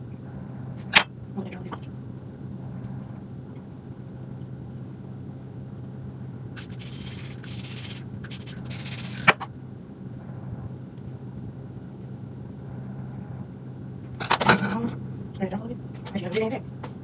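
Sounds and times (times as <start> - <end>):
aerosol spray can hissing: 6.6 - 9.3.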